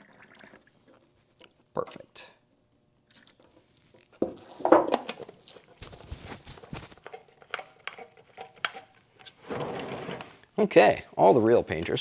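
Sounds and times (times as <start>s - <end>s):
cups and cans clicking and knocking: 3.4s - 5.7s, 6.8s - 9.3s.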